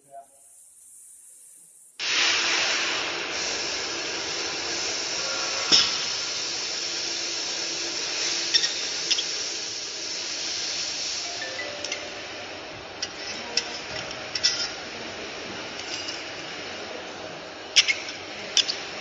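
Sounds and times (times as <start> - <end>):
compressed air hissing: 0.3 - 12.0.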